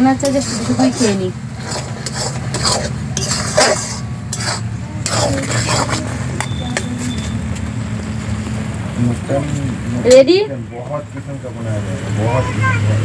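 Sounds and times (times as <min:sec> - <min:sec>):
metal spoon scraping a wok: 0:00.0 - 0:07.5
steady low hum: 0:00.0 - 0:11.6.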